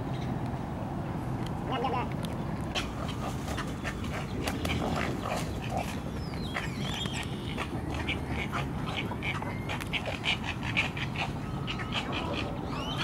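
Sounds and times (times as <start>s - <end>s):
wading birds grunting and croaking: 2.8s - 13.0s.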